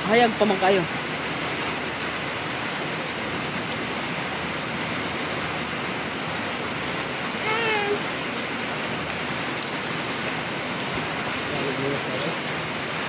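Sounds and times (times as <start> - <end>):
heavy rain falling: 0.0 - 13.0
person speaking: 7.4 - 8.0.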